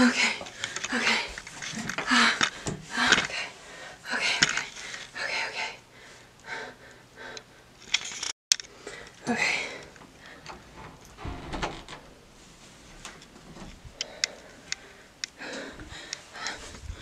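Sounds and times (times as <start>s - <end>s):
person panting hard: 2.0s - 7.7s, 14.0s - 17.0s.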